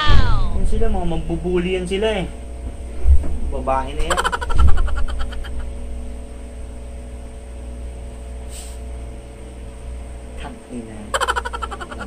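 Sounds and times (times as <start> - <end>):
steady low hum: 0.0 - 12.0
cloth hiss: 8.5 - 8.8.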